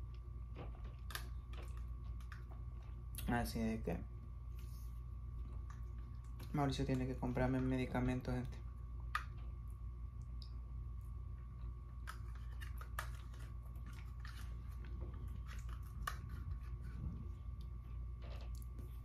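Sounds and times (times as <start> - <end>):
steady low hum: 0.0 - 19.0
person chewing: 11.5 - 19.0.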